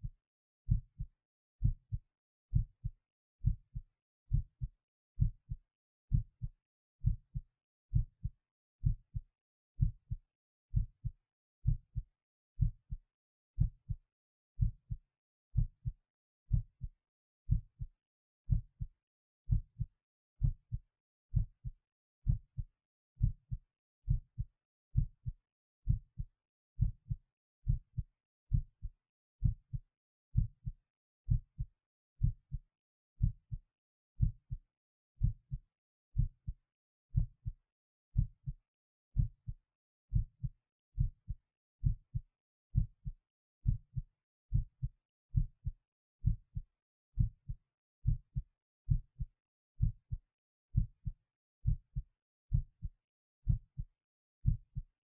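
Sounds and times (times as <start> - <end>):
heartbeat thumps: 0.7 - 9.2, 9.8 - 12.0, 12.6 - 13.0, 19.5 - 22.6, 24.1 - 25.3, 25.9 - 29.8, 30.4 - 30.7, 31.3 - 32.6, 33.2 - 33.6, 39.2 - 42.2, 42.8 - 44.8, 45.4 - 46.6, 47.2 - 50.1, 50.8 - 52.9, 53.5 - 53.8, 54.4 - 54.8.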